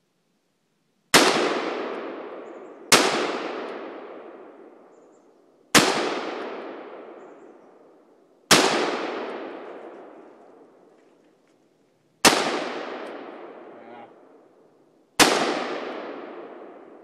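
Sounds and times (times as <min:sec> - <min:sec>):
rifle shots with echo: 0:01.1 - 0:05.0, 0:05.7 - 0:10.9, 0:12.2 - 0:14.5, 0:15.2 - 0:17.0.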